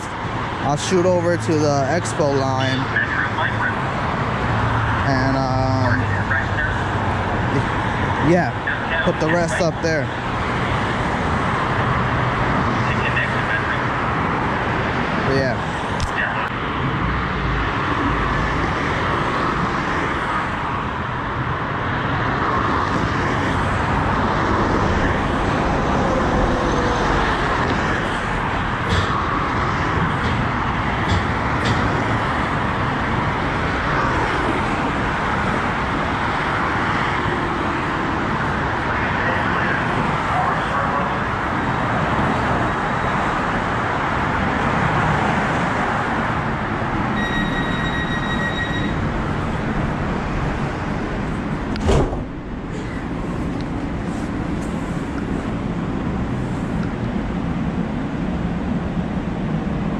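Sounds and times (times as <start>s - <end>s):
steady road traffic: 0.0s - 59.9s
light-rail train pulling in: 47.2s - 51.4s.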